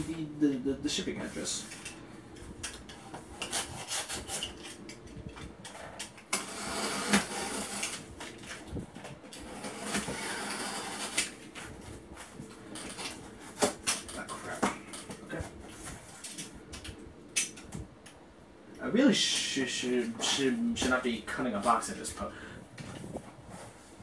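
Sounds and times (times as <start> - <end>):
knife cutting cardboard: 3.1 - 4.8, 6.4 - 8.0, 9.4 - 11.8.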